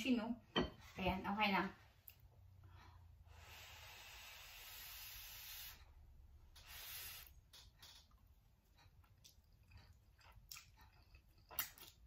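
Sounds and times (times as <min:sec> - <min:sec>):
faint breath blowing: 0:02.8 - 0:05.9.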